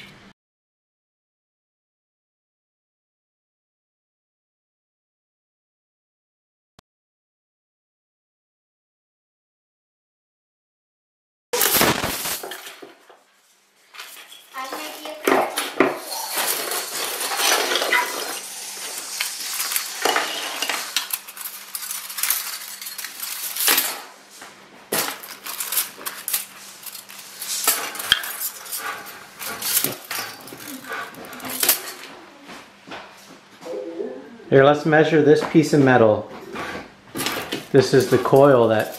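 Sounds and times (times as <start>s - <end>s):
steel spring scraping and clinking: 16.0s - 24.1s.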